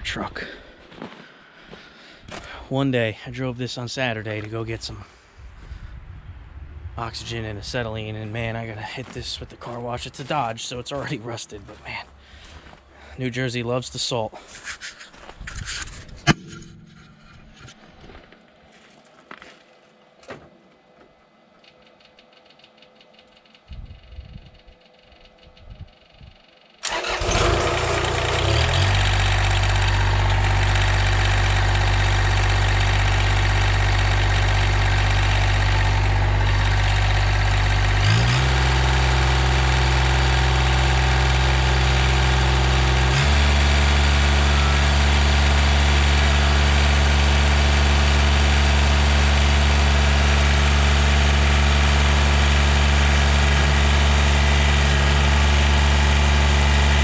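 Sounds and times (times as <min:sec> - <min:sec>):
tractor diesel engine idling: 0:26.8 - 0:57.0.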